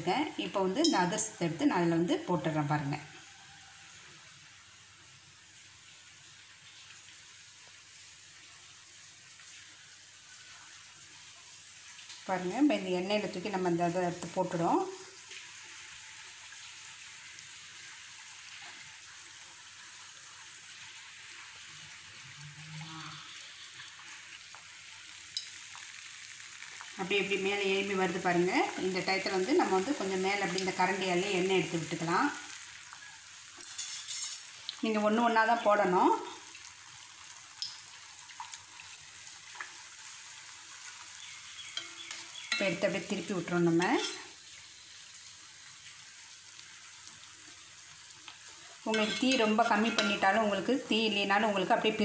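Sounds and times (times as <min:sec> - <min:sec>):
oil sizzling in a pan: 0:00.0 - 0:52.0.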